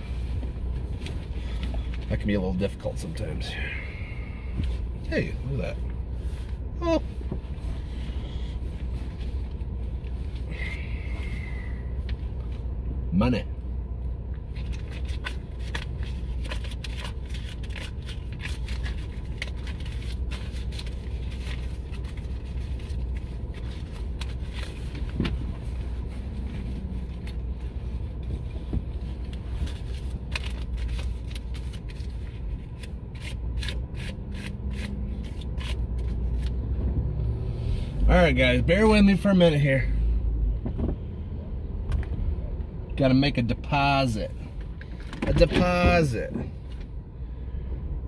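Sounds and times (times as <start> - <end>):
car engine idling: 0.0 - 48.0.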